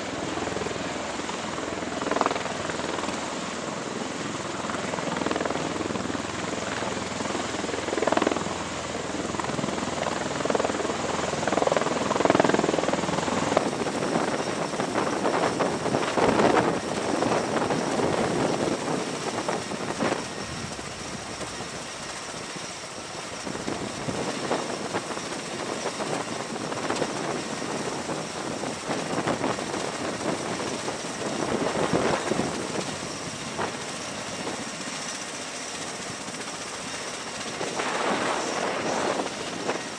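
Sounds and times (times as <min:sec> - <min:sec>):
tiltrotor aircraft roar: 0:00.0 - 0:39.9.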